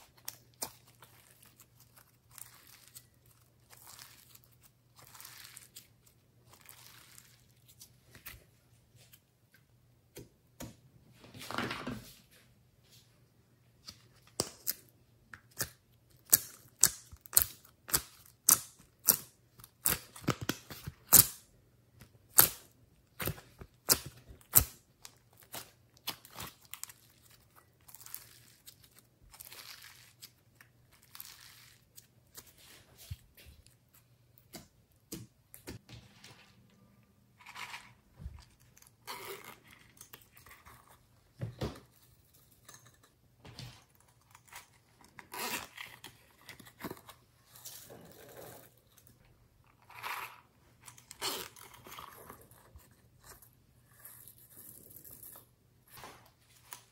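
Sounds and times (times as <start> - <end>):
slime squelching and stretching: 0.0 - 8.4, 22.3 - 35.8.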